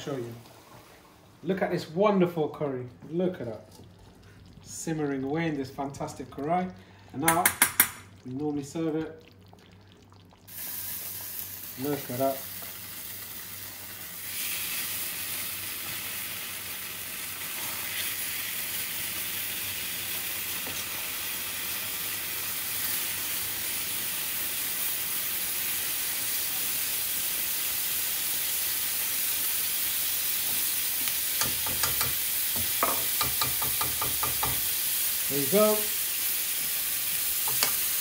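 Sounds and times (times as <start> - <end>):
curry sizzling in a hot pan: 10.2 - 38.0.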